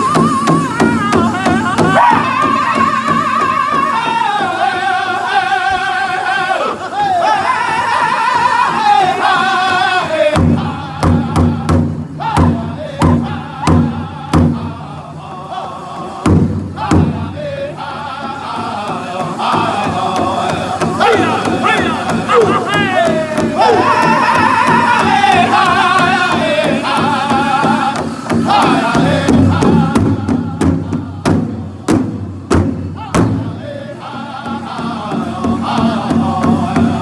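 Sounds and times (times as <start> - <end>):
group singing high-pitched song: 0.0 - 32.2, 32.8 - 37.0
large bass drum strikes: 10.3 - 15.2, 16.0 - 17.6, 18.2 - 37.0.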